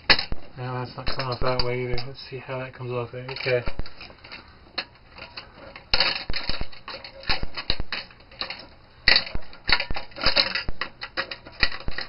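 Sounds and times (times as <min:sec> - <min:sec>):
circuit board clicking and rattling: 0:03.3 - 0:12.0.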